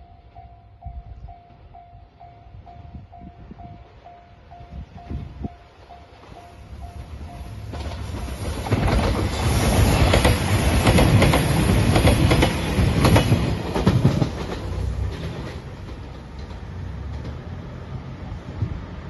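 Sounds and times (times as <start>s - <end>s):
diesel train passing: 0.0s - 19.0s
wheels clacking over rail joints: 6.2s - 17.6s.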